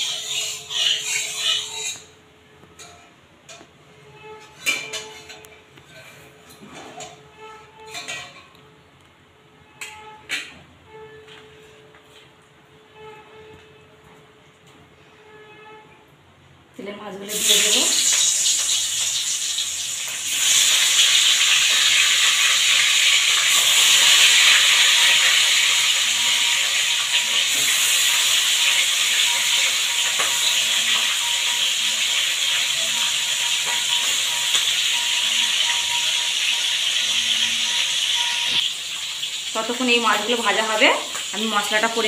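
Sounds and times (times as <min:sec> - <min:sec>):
fish sizzling in hot oil: 0:00.0 - 0:02.1, 0:17.3 - 0:42.0.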